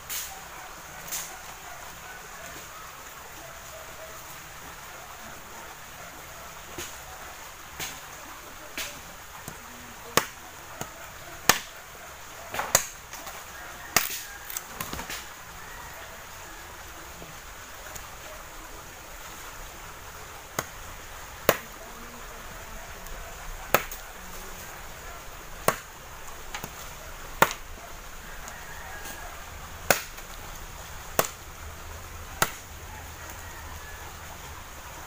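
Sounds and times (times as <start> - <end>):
machete chopping branches: 1.0 - 1.3, 6.7 - 7.0, 7.7 - 8.1, 8.7 - 11.8, 12.5 - 15.3, 21.4 - 21.8, 23.7 - 24.4, 25.6 - 27.7, 29.8 - 31.4, 32.4 - 32.7.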